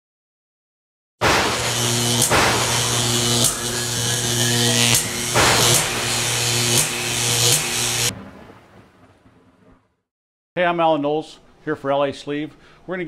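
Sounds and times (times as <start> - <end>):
sharp electric zaps: 1.2 - 8.1.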